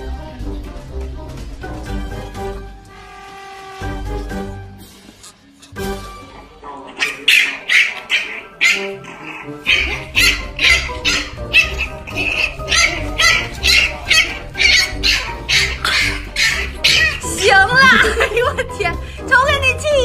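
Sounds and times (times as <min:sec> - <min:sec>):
background music: 0:00.0 - 0:20.0
puppy yapping: 0:06.9 - 0:18.0.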